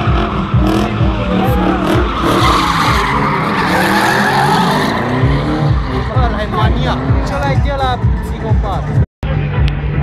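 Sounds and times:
car engine revving: 0:00.0 - 0:09.0
tyres screeching: 0:00.2 - 0:07.3.

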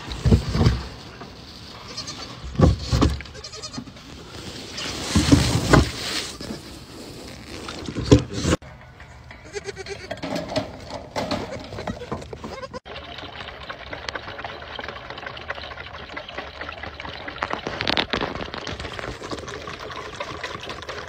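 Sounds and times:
goats bleating: 0:03.3 - 0:03.9, 0:09.4 - 0:10.2, 0:11.4 - 0:12.8.

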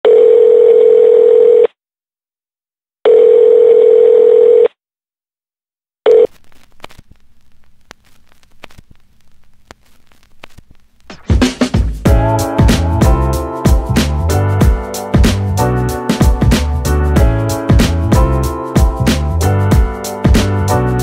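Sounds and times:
telephone ringback tone: 0:00.0 - 0:01.7, 0:03.1 - 0:04.7, 0:06.1 - 0:06.3.

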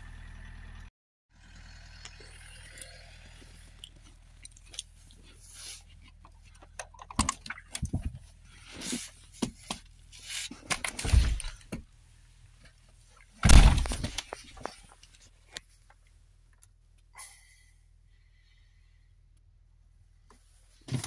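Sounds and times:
car door thumping shut: 0:13.4 - 0:14.2.

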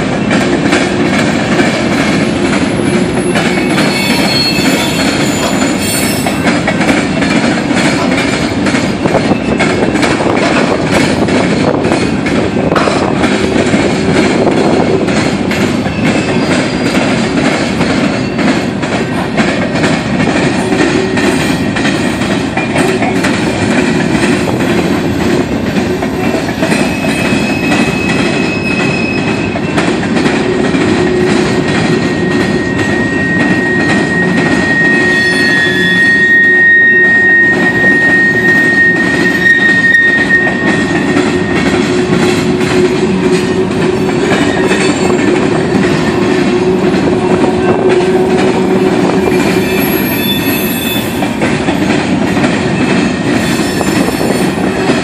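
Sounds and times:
train wheels rumbling on track: 0:00.0 - 0:55.0
high wheel squeal: 0:02.7 - 0:06.6, 0:15.9 - 0:17.0, 0:26.4 - 0:29.8, 0:31.8 - 0:41.7, 0:48.8 - 0:51.3.

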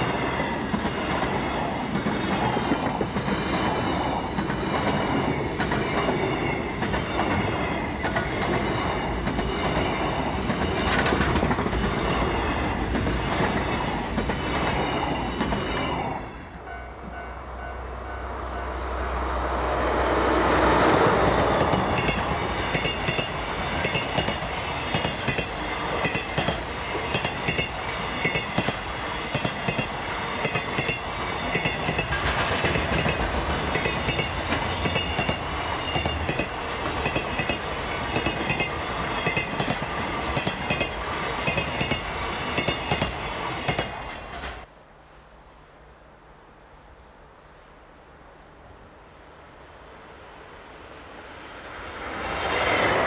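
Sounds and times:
train wheels clacking on rail joints: 0:00.0 - 0:16.1, 0:20.9 - 0:44.7
diesel locomotive engine: 0:00.0 - 0:44.7.

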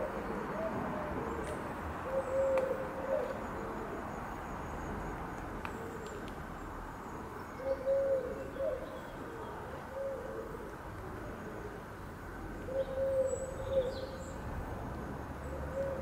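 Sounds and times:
dove cooing: 0:00.0 - 0:04.0, 0:07.6 - 0:11.8, 0:12.6 - 0:14.1, 0:15.4 - 0:16.0.

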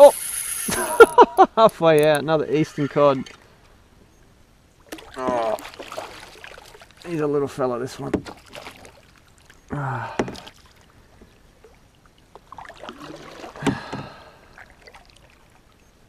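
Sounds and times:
fish splashing at surface: 0:04.9 - 0:07.0.

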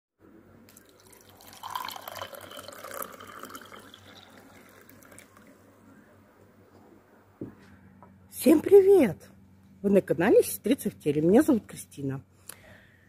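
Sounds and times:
water pouring into a glass mug: 0:00.7 - 0:05.6.

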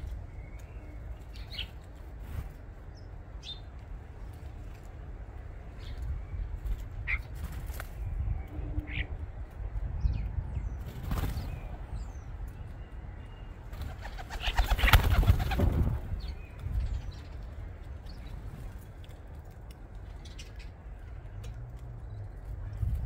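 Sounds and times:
bird wings flapping: 0:06.6 - 0:08.0, 0:10.8 - 0:11.7, 0:13.7 - 0:16.2.

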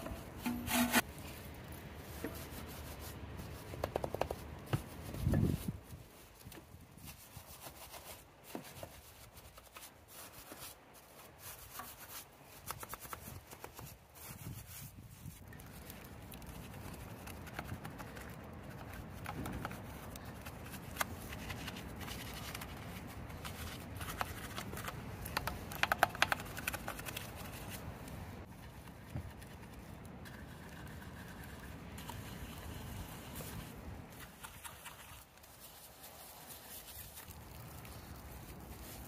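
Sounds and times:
rubbing and scrubbing car: 0:00.0 - 0:01.1, 0:02.0 - 0:15.4, 0:16.4 - 0:39.0.

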